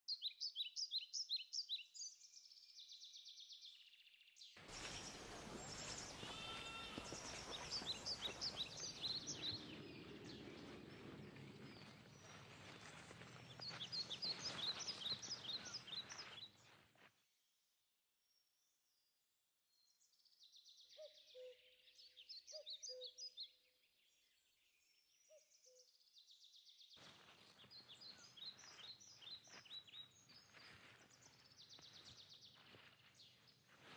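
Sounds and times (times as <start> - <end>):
songbirds chirping and trilling: 4.6 - 16.8, 27.1 - 33.9
steady hiss: 4.7 - 9.1.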